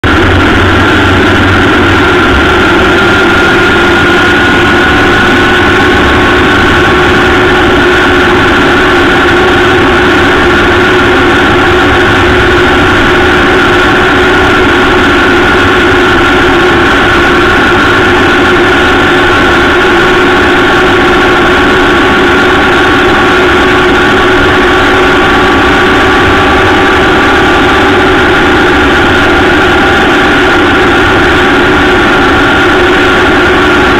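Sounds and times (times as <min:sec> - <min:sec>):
motorcycle engine drone: 0:00.0 - 0:33.9
wind rush: 0:00.0 - 0:33.9.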